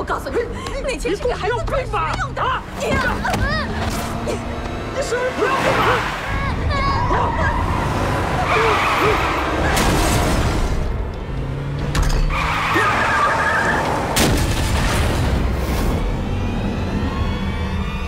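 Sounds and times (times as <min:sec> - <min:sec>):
dramatic background music: 0:00.0 - 0:18.0
tires screeching: 0:00.8 - 0:18.0
loud car crash impacts: 0:14.1 - 0:15.4.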